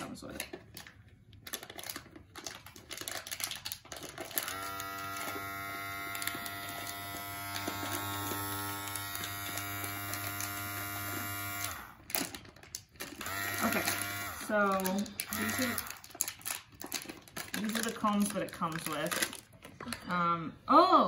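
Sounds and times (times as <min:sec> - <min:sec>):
dog clippers humming: 0:04.2 - 0:12.3, 0:13.0 - 0:16.1.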